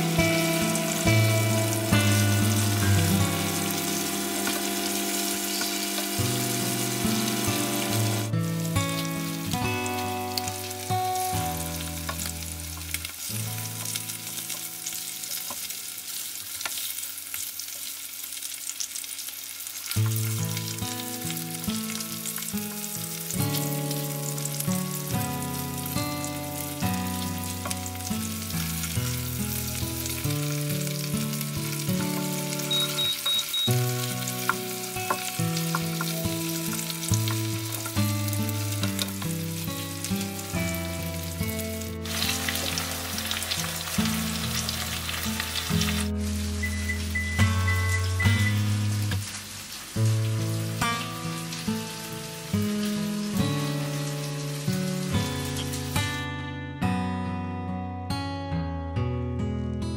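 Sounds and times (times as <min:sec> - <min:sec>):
background music: 0:00.0 - 0:05.5, 0:06.1 - 0:15.4, 0:20.6 - 0:49.1
fish sizzling in oil: 0:00.0 - 0:56.2.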